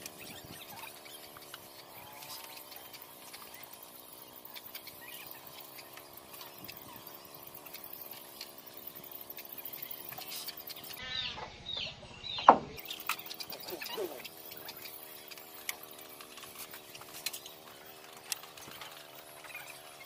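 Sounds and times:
bird calls: 0:00.0 - 0:07.4, 0:09.7 - 0:15.5.

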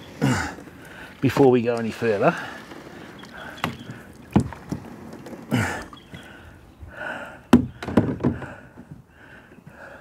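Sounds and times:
hollow knocks on plastic kayak hull: 0:07.5 - 0:08.6.

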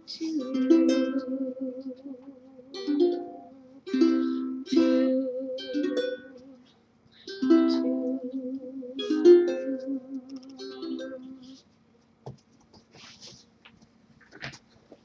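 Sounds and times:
ukulele strummed chords: 0:00.0 - 0:06.7, 0:07.3 - 0:11.6.

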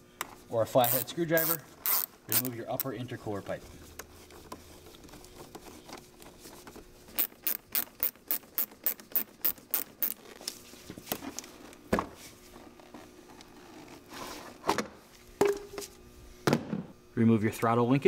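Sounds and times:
ratchet clicking: 0:00.8 - 0:02.9, 0:07.2 - 0:10.2
rustle of pipe being worked: 0:03.3 - 0:07.3.

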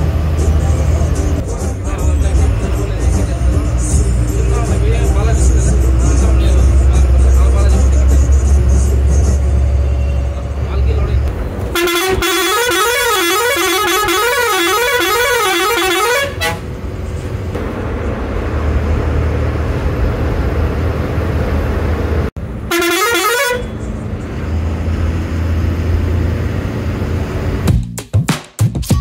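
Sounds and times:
bus engine humming: 0:00.0 - 0:27.7
road noise: 0:00.0 - 0:27.7
bus horn warbling: 0:11.7 - 0:16.8, 0:22.6 - 0:23.9.

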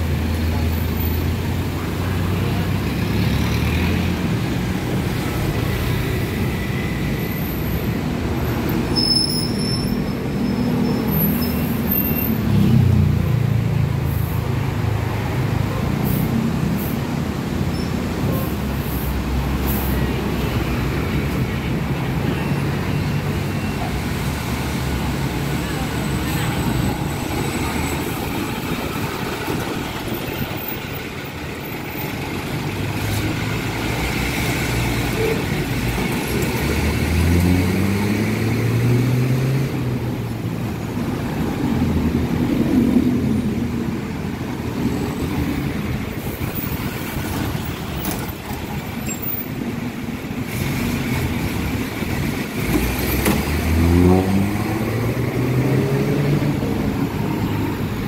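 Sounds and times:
road traffic passing: 0:00.0 - 0:58.0
vehicle engine accelerating: 0:35.8 - 0:40.1, 0:50.5 - 0:58.0.

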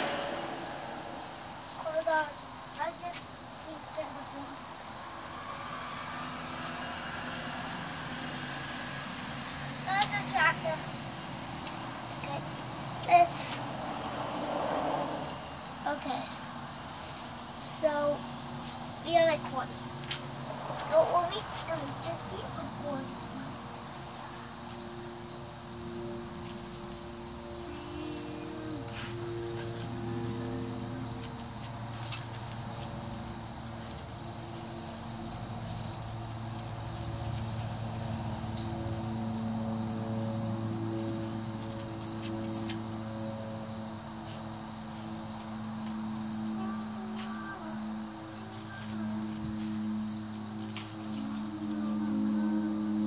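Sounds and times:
low wavering hum: 0:00.0 - 0:02.5
insect chirping: 0:00.0 - 0:53.0.

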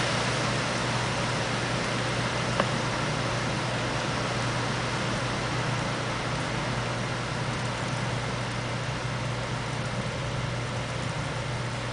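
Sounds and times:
heavy rain pouring: 0:00.0 - 0:11.9.

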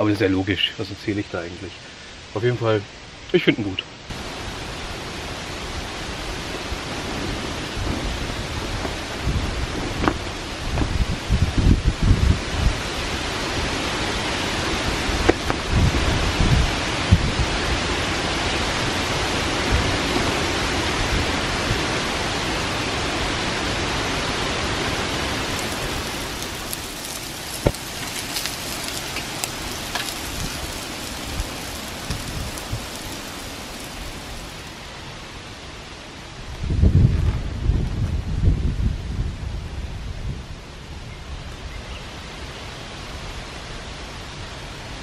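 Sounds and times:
wind rushing through tree leaves: 0:00.0 - 0:45.0
sharp ticks and crackles: 0:25.4 - 0:34.7.

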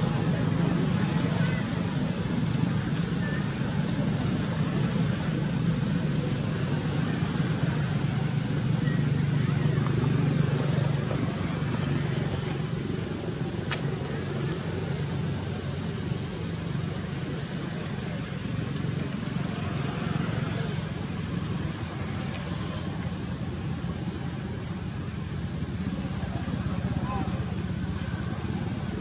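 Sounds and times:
constant low hum: 0:00.0 - 0:29.0.

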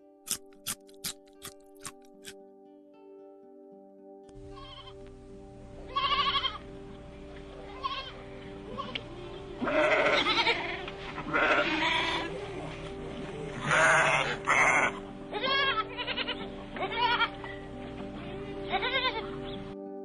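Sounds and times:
background music: 0:00.0 - 0:20.0
lamb bleating: 0:04.5 - 0:05.0, 0:05.9 - 0:06.7, 0:07.7 - 0:09.0, 0:09.6 - 0:12.3, 0:13.6 - 0:17.4, 0:18.7 - 0:19.4.

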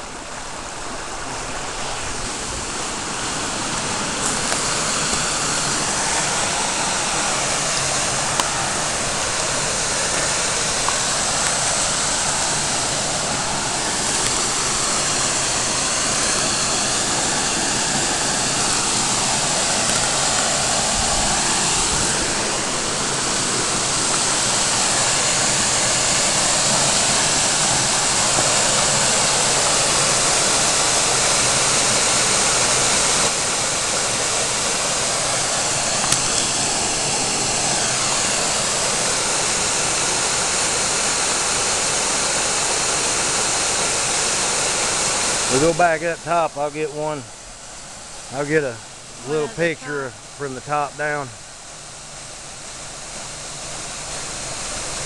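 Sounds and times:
waterfall pouring into pool: 0:00.0 - 0:55.0.

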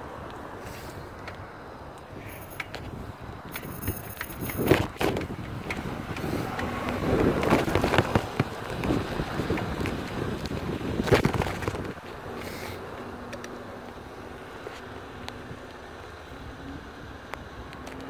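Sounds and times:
wind across microphone: 0:00.0 - 0:18.0
phone rustling and knocking: 0:07.3 - 0:10.1.

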